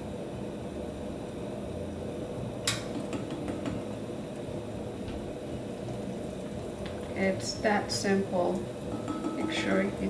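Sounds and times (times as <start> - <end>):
metal bowl clinking: 8.9 - 10.0.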